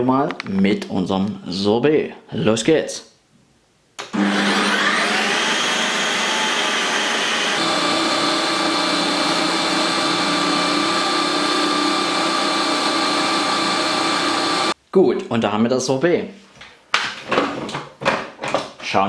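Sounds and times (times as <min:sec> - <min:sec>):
ice cream maker motor whine: 0:04.1 - 0:14.8.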